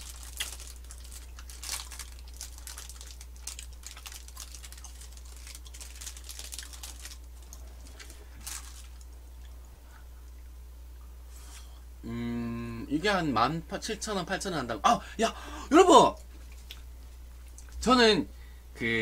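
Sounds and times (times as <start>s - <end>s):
plastic wrapping crinkling: 0.0s - 9.2s
steady low hum: 0.0s - 19.0s.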